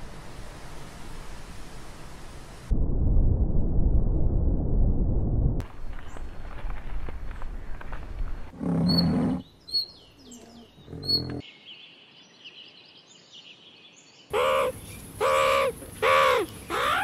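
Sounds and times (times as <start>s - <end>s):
low rumbling: 2.7s - 5.8s
birds chirping: 8.8s - 17.0s
loud harsh bird call: 14.3s - 17.0s.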